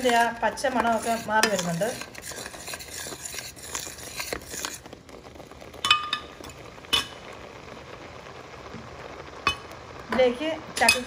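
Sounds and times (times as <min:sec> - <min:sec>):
metal spoon scraping a pan: 0:00.0 - 0:05.0
curry bubbling: 0:00.0 - 0:11.0.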